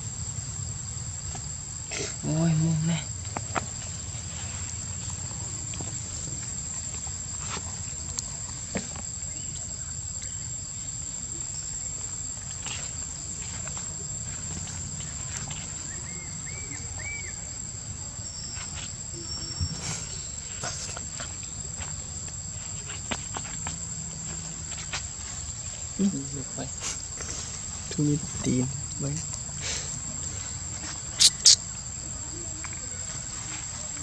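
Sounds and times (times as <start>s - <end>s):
insects droning: 0.0s - 34.0s
short chirps: 31.2s - 31.6s.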